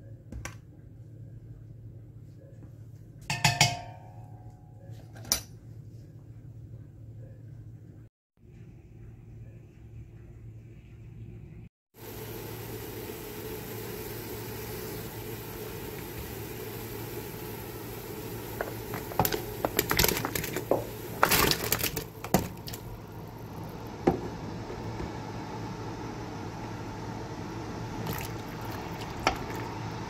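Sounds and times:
water boiling in a pot: 0:12.0 - 0:30.0
splashes: 0:21.2 - 0:22.9, 0:28.0 - 0:29.6.

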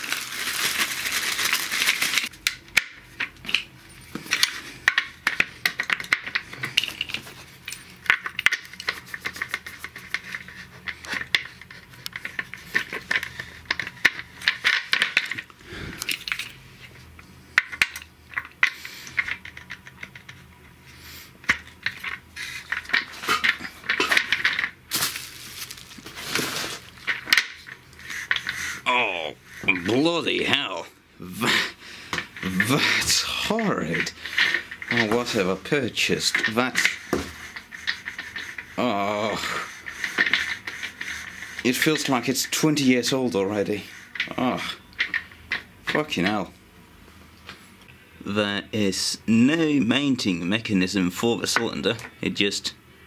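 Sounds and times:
plastic bag crinkling: 0:00.0 - 0:02.4, 0:22.5 - 0:27.7
plastic parts clicking and knocking: 0:01.4 - 0:16.5, 0:17.6 - 0:20.6, 0:21.4 - 0:28.6, 0:39.8 - 0:42.7, 0:44.1 - 0:46.4.

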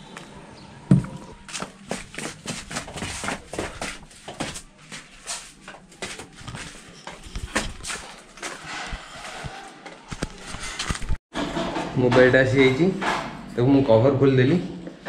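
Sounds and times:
footsteps down stairs: 0:00.9 - 0:10.3.

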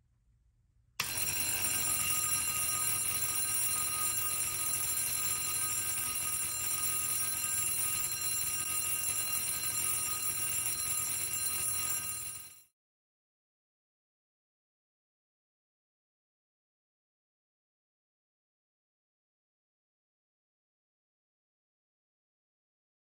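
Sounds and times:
fire alarm bell ringing: 0:01.0 - 0:12.7.

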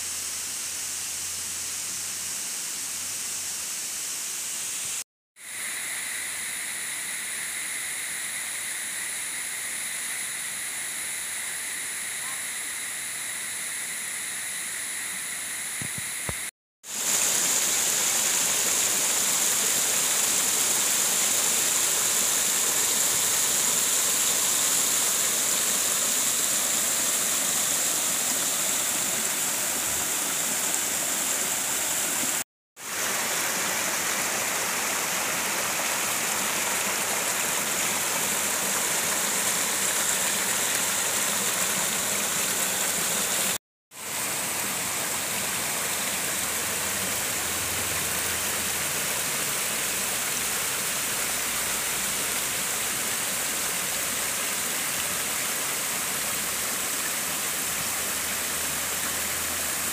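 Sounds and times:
stream pouring over rocks: 0:15.8 - 0:59.9
waterfall rushing: 0:16.9 - 0:59.9.

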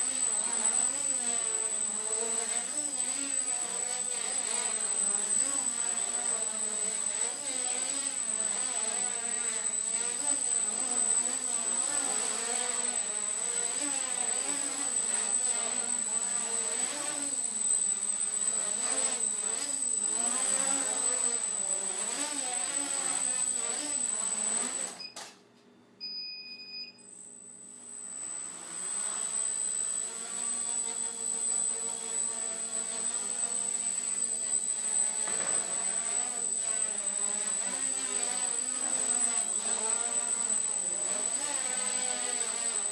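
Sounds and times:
quadcopter motors buzzing: 0:00.0 - 0:25.2, 0:27.9 - 0:42.9
short electronic beep: 0:26.0 - 0:27.0.

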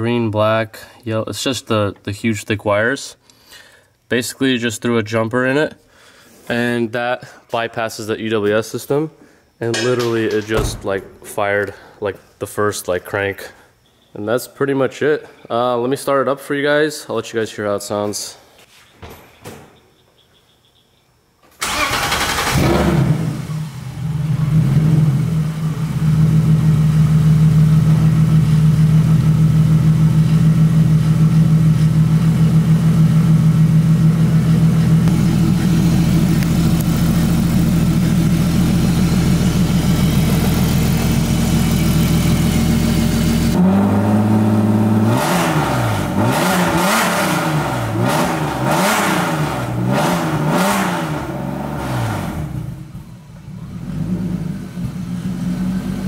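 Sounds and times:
engine revving: 0:21.6 - 0:25.4, 0:35.1 - 0:53.0
car engine starting and idling: 0:21.6 - 0:56.0.

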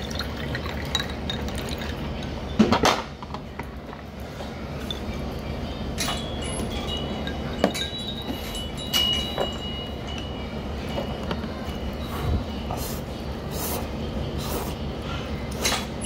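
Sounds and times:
dishes and utensils clinking: 0:00.5 - 0:03.3, 0:04.4 - 0:05.3, 0:05.9 - 0:12.8, 0:15.5 - 0:16.0
thin high ringing tone: 0:04.8 - 0:13.4.

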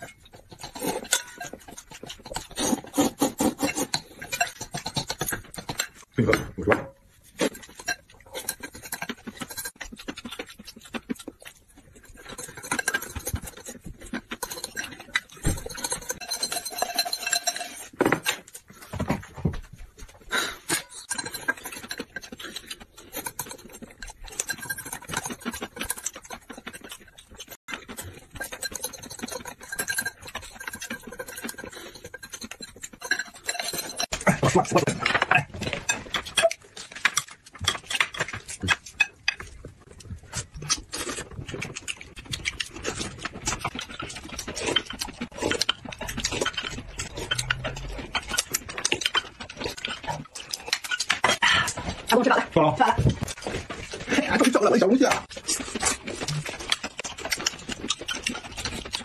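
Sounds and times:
noodles being slurped: 0:00.0 - 0:06.1
chewing: 0:00.0 - 0:59.0.

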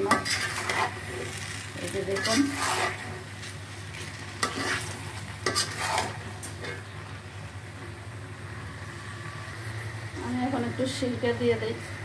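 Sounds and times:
spatula scraping a pan: 0:00.0 - 0:03.2, 0:03.9 - 0:06.8
syrup sizzling: 0:00.0 - 0:06.6.

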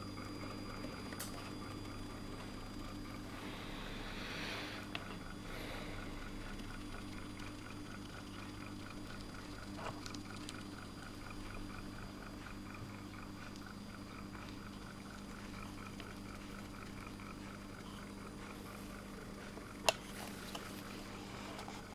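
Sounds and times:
faint mains hum: 0:00.0 - 0:21.9
soft regular ticking: 0:04.8 - 0:21.1.

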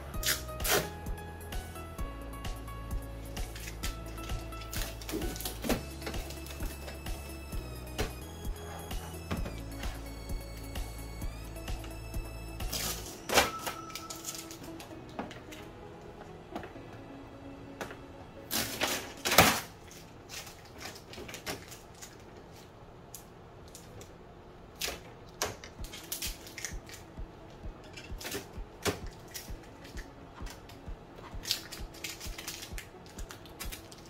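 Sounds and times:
tape ripping off plastic: 0:00.2 - 0:01.0, 0:03.4 - 0:06.6, 0:18.5 - 0:22.2
clicks and crackles of handled tape: 0:03.4 - 0:07.0, 0:18.5 - 0:24.2, 0:24.8 - 0:34.0.

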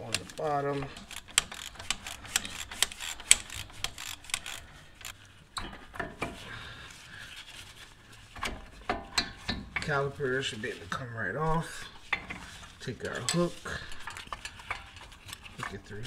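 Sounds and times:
metal caliper scraping: 0:00.0 - 0:05.2
socket ratchet clicking: 0:00.0 - 0:05.2.

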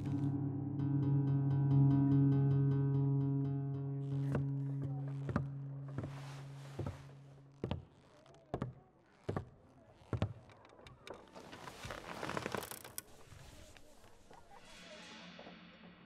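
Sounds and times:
held music note: 0:00.0 - 0:07.6.

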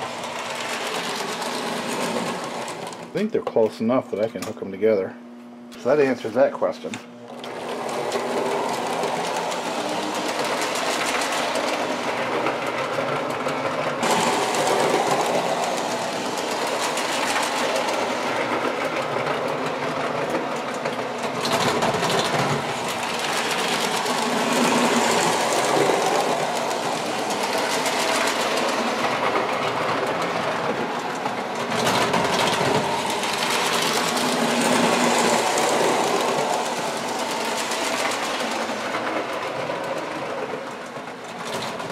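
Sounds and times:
model train motors whirring: 0:00.0 - 0:03.2, 0:07.2 - 0:41.9
wheels rattling on rails: 0:00.0 - 0:03.2, 0:07.3 - 0:41.9.

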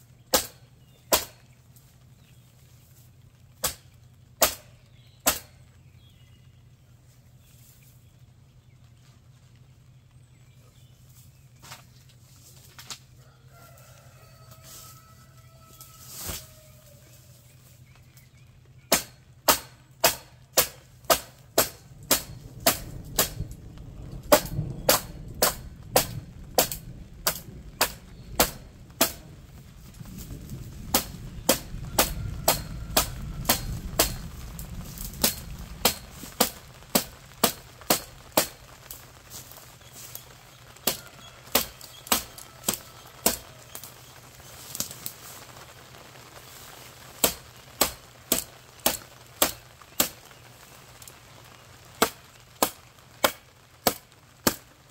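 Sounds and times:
hand tool striking wood: 0:00.4 - 0:01.4, 0:18.9 - 0:23.4, 0:24.3 - 0:29.2, 0:30.9 - 0:34.2.

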